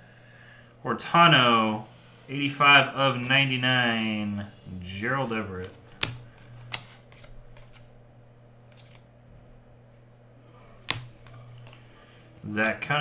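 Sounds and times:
steady low hum: 0.0s - 13.0s
trading cards flipped by hand: 5.2s - 8.0s, 8.6s - 9.1s, 10.7s - 13.0s
sharp card snap: 5.9s - 7.8s, 10.8s - 11.8s.

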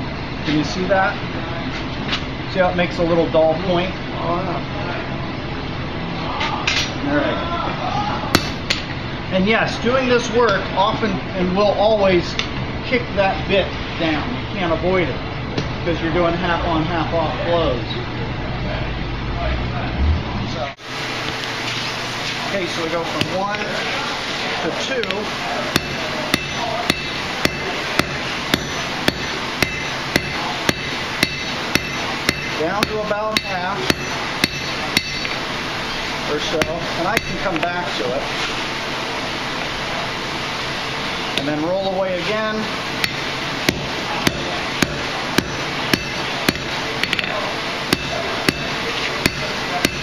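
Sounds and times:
hammer striking steel on anvil: 8.4s - 8.8s, 25.0s - 35.4s, 36.5s - 37.6s, 43.0s - 50.0s.

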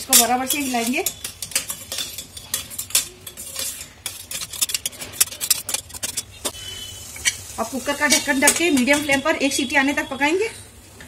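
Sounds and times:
metal spatula scraping pot: 0.0s - 7.4s.

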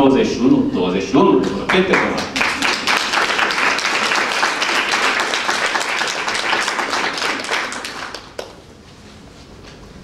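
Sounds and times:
audience applauding: 1.4s - 8.6s.

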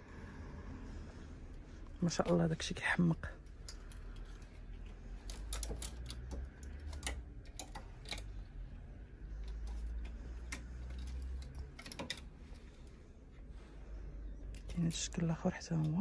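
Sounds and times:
light handling clicks and knocks: 3.4s - 13.0s.

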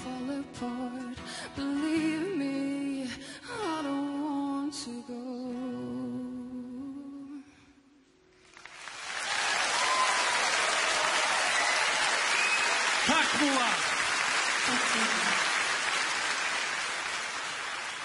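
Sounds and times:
pop song: 0.0s - 7.5s.

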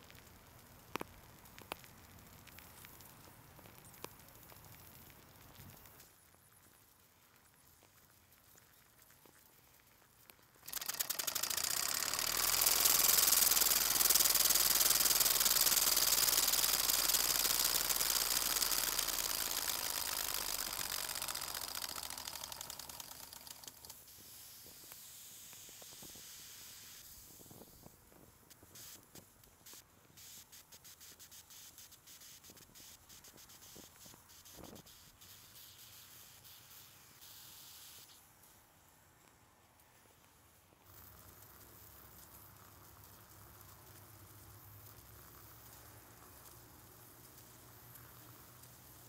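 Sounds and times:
steam engine hissing and ticking: 10.6s - 35.6s.

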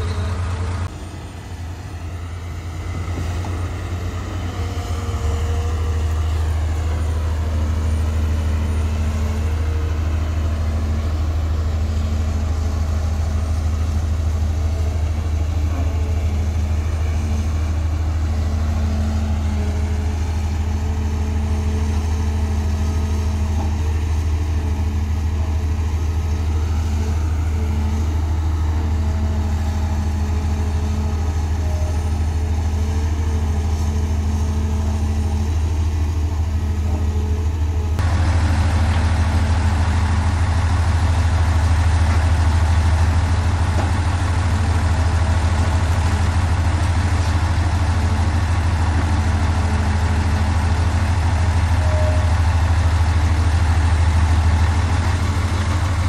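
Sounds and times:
faint pitched drone: 0.0s - 40.7s
diesel engine rumbling: 0.0s - 56.0s.

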